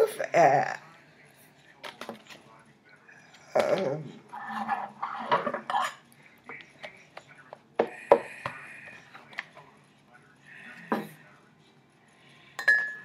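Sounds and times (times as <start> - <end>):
metal utensil scraping glass dish: 4.3 - 6.0.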